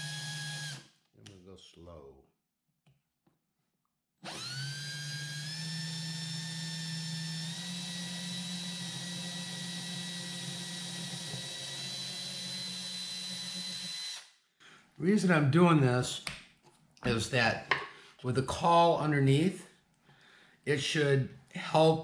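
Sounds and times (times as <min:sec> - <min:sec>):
cordless drill whining: 0:00.0 - 0:00.9, 0:04.2 - 0:14.4.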